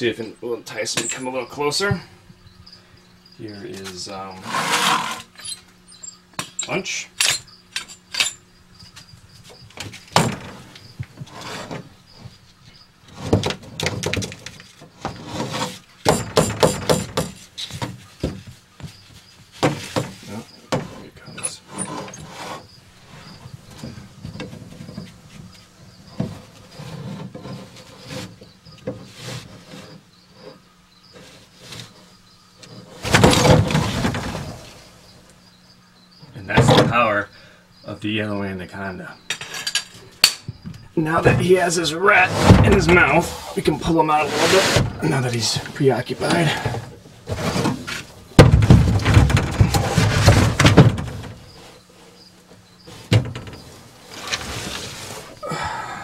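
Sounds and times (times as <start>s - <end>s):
steady low hum: 0.0s - 56.0s
rustling: 40.8s - 55.7s.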